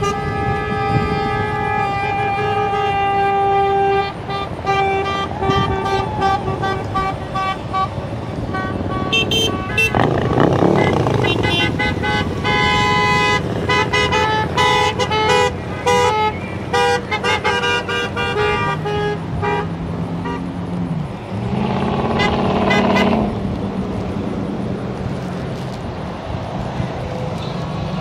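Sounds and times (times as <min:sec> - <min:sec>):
low long horn tone: 0:00.0 - 0:07.9
car horns honking: 0:00.0 - 0:20.7, 0:21.3 - 0:23.4
loud vehicle sound: 0:00.0 - 0:28.0.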